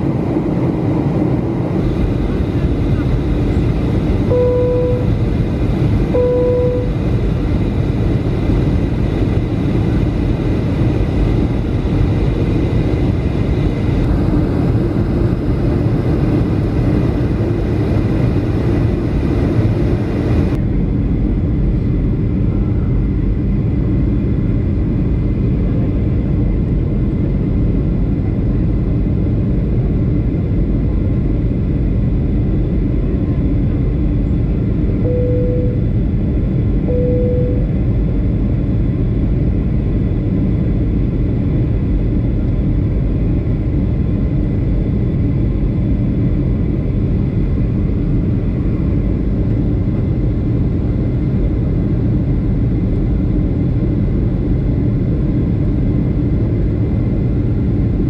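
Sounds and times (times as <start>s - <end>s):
airplane cabin engine hum: 0.0s - 58.0s
short steady tone: 4.3s - 5.2s, 6.1s - 7.1s, 35.0s - 35.9s, 36.8s - 37.8s.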